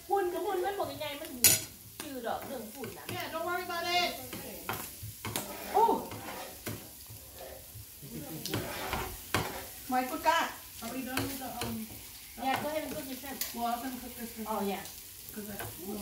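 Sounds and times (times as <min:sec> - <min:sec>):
food sizzling on a griddle: 0:00.0 - 0:16.0
people talking: 0:00.1 - 0:04.8, 0:05.6 - 0:06.2, 0:09.9 - 0:16.0
plastic spatula scraping: 0:05.2 - 0:07.7, 0:08.5 - 0:09.8.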